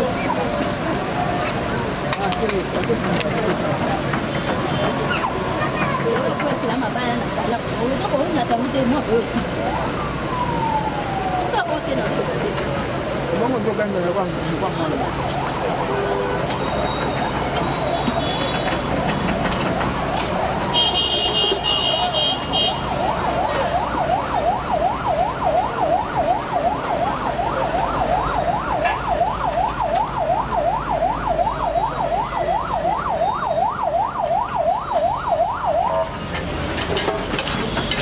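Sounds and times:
street noise: 0.0s - 38.0s
siren yelping: 8.2s - 12.4s, 21.8s - 36.2s.

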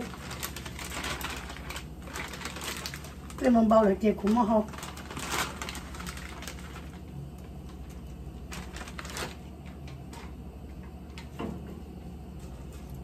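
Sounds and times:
plastic bag crinkling: 0.0s - 11.5s, 12.2s - 13.0s
steady low hum: 0.0s - 13.0s
dry noodles clicking: 4.2s - 11.4s.

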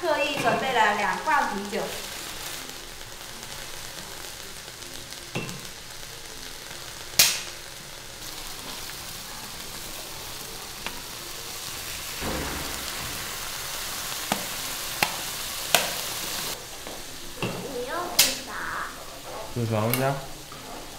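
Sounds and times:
beer hissing in hot wok: 0.0s - 20.9s
crawfish sizzling in a wok: 0.0s - 20.9s
can pull-tab popping and fizzing: 7.1s - 7.6s, 12.2s - 16.2s, 18.2s - 18.5s.

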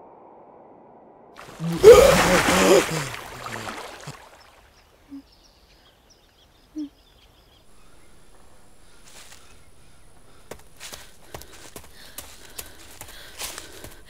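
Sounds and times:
brief low calls: 1.4s - 4.3s
water splashing: 1.4s - 4.9s
faint bird chirps: 3.5s - 11.2s.

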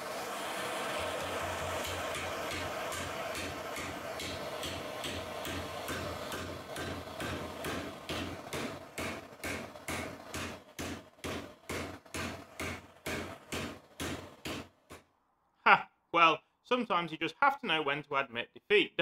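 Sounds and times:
blowtorch hissing: 0.0s - 15.1s
hammer striking steel: 1.6s - 15.0s.

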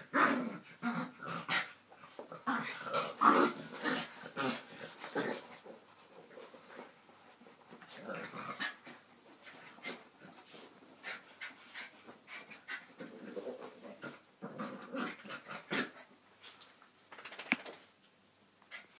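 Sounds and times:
dogs growling: 0.0s - 6.8s, 12.6s - 16.1s.

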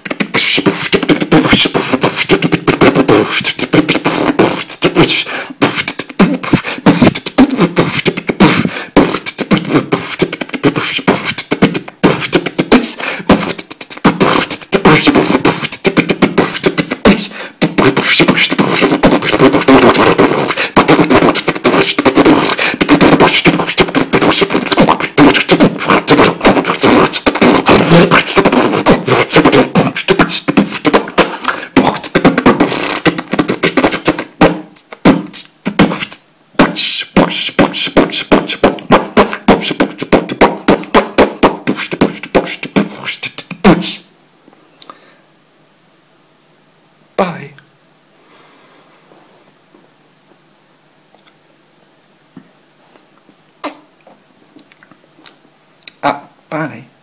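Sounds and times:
man beatboxing: 0.0s - 44.1s, 53.6s - 53.9s.

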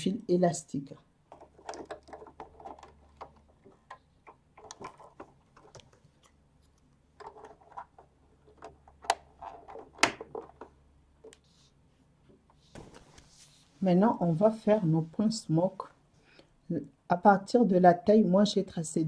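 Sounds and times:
small plastic clicks and knocks: 1.3s - 11.4s.

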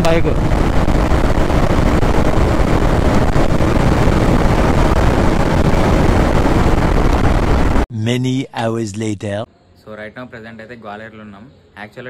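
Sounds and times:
motorcycle engine drone: 0.0s - 7.8s
wind rush over microphone: 0.0s - 7.8s.

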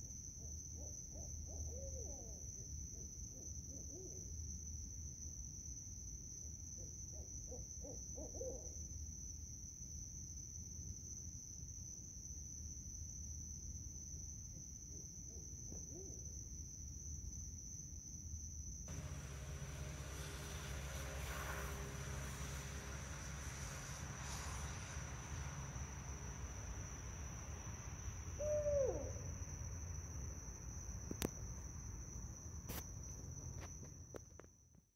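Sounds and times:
high insect trill: 0.0s - 34.7s
owl hooting: 0.4s - 4.3s, 6.8s - 8.8s, 18.9s - 29.5s
steady high-pitched hum: 18.9s - 33.4s.

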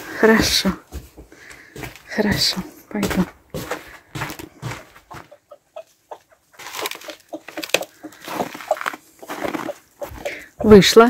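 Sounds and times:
hens clucking: 4.2s - 11.0s.

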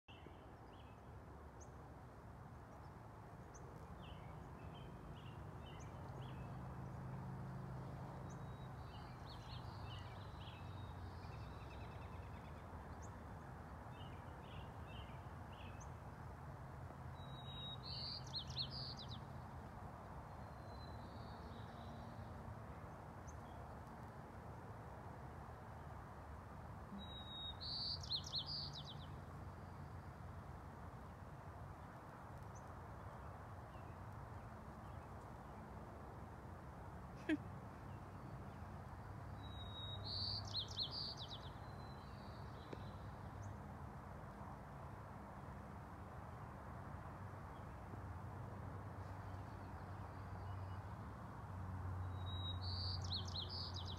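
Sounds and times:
bird chirps: 39.4s - 43.0s, 52.2s - 53.9s.

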